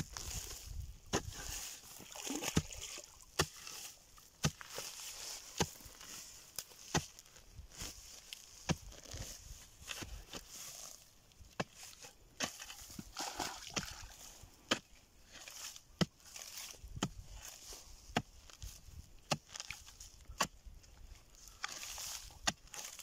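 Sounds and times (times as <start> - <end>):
rustling dry grass and soil: 0.0 - 23.0
spade chopping into earth: 1.1 - 1.7, 2.5 - 7.3, 8.5 - 10.8, 11.5 - 14.0, 14.7 - 18.4, 19.2 - 20.8, 21.6 - 23.0.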